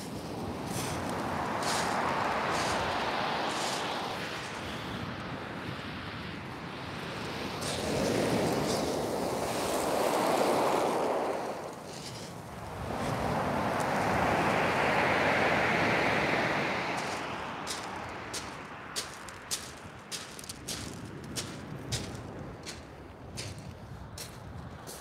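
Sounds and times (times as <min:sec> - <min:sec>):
water washing over stones: 0:00.0 - 0:04.8.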